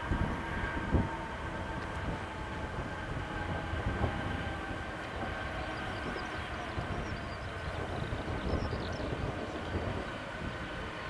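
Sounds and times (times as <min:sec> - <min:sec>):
jet engines whining: 0:00.0 - 0:11.0
wind buffeting microphone: 0:00.0 - 0:11.0.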